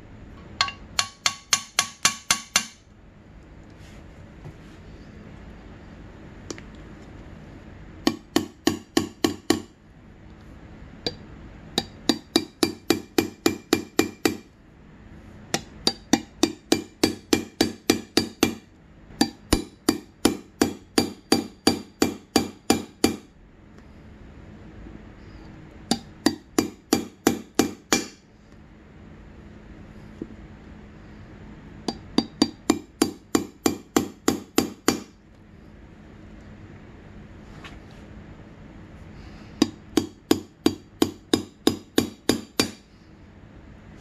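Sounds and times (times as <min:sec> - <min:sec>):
hammer tapping metal socket: 0:00.6 - 0:02.8.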